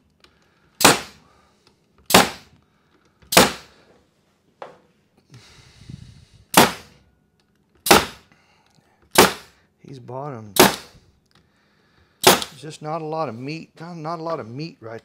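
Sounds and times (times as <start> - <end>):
pneumatic stapler shots: 0.8 - 1.2, 2.1 - 2.6, 3.3 - 3.7, 6.5 - 7.0, 7.8 - 8.3, 9.1 - 9.6, 10.6 - 11.0, 12.2 - 12.6.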